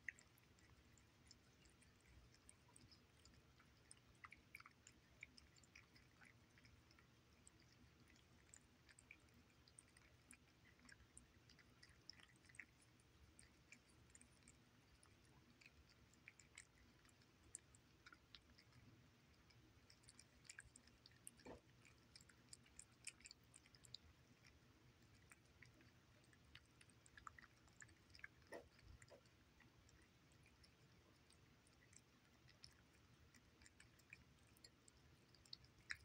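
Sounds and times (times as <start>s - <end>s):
cats chewing wet food: 0.0s - 36.0s.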